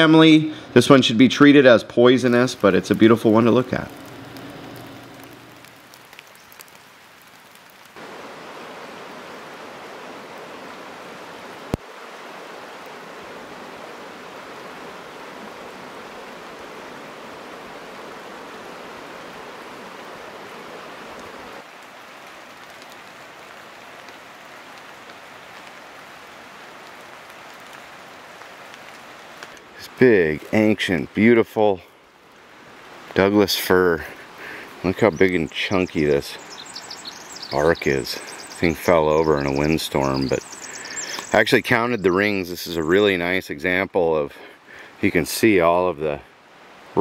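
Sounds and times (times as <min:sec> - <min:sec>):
rushing river water: 0:00.0 - 0:47.0
faint ticks: 0:40.5 - 0:41.4.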